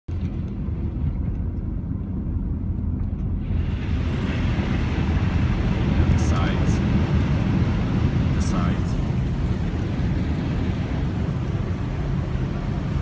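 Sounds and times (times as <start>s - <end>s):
vehicle rumble from inside cab: 0.1s - 13.0s
tyres rushing through water: 3.4s - 13.0s.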